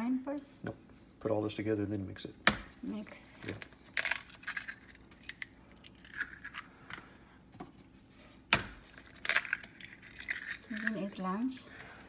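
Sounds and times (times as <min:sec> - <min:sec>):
eggs cracked against metal bowl: 0:02.4 - 0:02.8, 0:03.4 - 0:07.1, 0:08.5 - 0:11.2.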